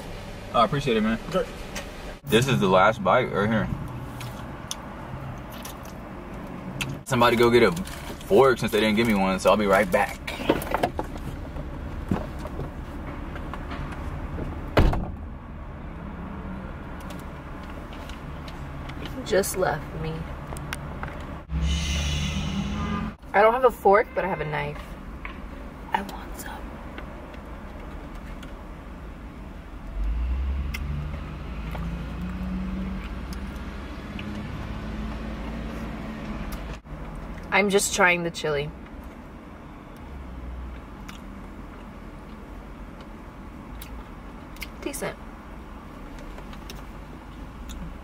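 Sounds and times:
car engine rumbling: 0:00.0 - 0:48.0
car door opening: 0:14.4 - 0:15.2
car door slamming shut: 0:14.8 - 0:15.2.

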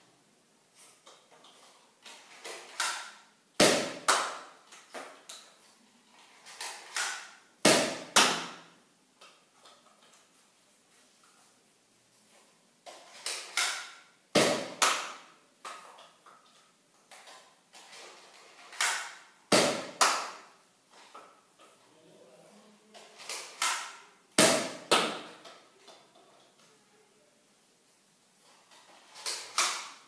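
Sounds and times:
dart blaster clacks and pops: 0:02.0 - 0:05.5, 0:06.4 - 0:08.8, 0:12.9 - 0:16.1, 0:18.6 - 0:20.5, 0:23.2 - 0:25.5, 0:29.1 - 0:30.0.

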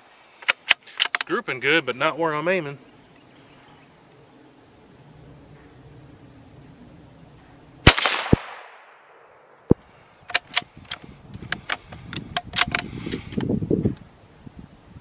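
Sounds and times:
rifle shot: 0:07.8 - 0:09.5.

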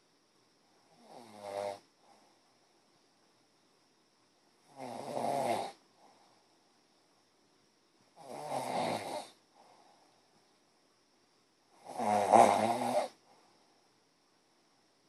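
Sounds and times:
faint high-pitched hum: 0:00.0 - 0:15.0
rattling snores: 0:00.9 - 0:01.9, 0:04.7 - 0:05.8, 0:08.2 - 0:09.4, 0:11.8 - 0:13.2.

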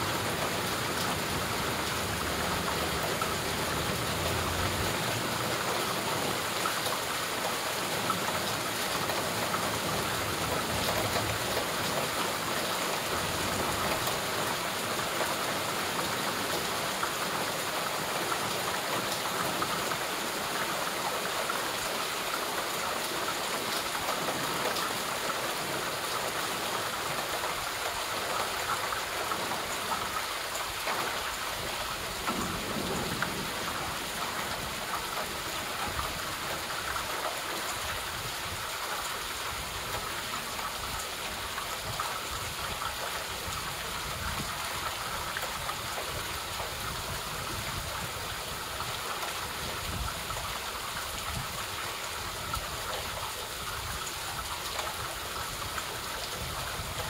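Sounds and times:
steady rainfall: 0:00.0 - 0:57.0.

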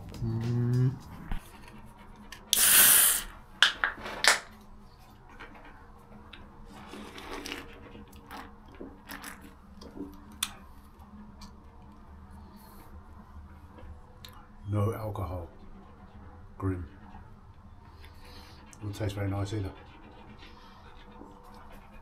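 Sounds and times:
chewing: 0:06.3 - 0:10.6.

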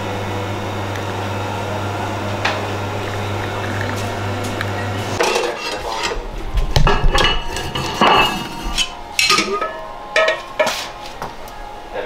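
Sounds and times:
espresso machine pump humming: 0:00.0 - 0:05.4.

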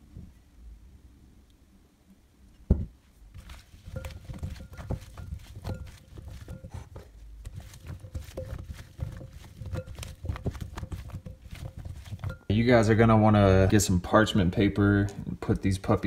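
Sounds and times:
food knocking against glass bowl: 0:02.7 - 0:12.5.

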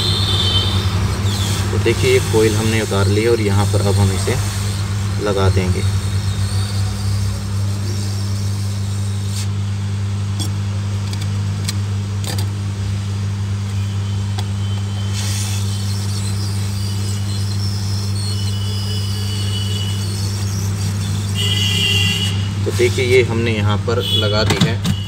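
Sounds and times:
hot air gun blowing: 0:00.0 - 0:09.6, 0:15.0 - 0:22.9.

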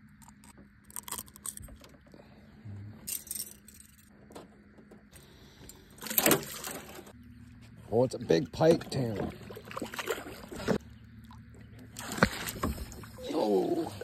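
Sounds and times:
metallic clicks and jingling: 0:03.0 - 0:04.1.

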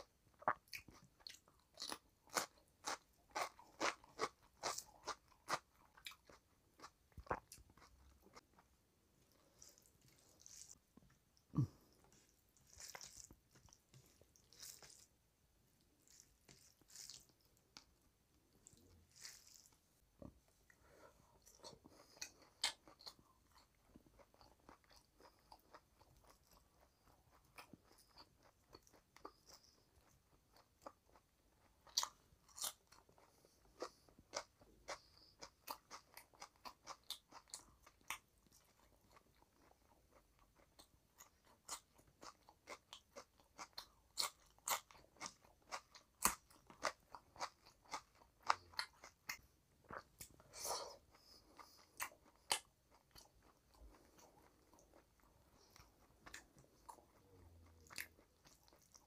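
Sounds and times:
crunchy chewing: 0:00.0 - 0:08.6, 0:09.3 - 0:15.1, 0:15.9 - 0:19.8
wet squishing of food by hand: 0:00.0 - 0:59.0.

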